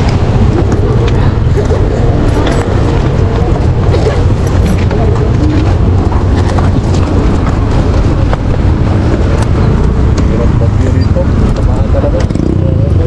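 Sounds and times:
motorcycle engine rumbling: 0.0s - 13.0s.

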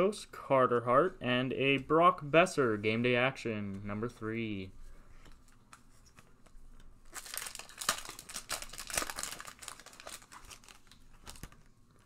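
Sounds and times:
foil wrapper tearing and crinkling: 7.1s - 11.6s.

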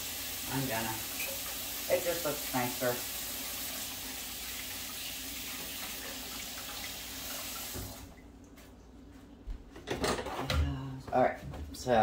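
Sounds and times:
tap water running into sink: 0.0s - 8.2s.

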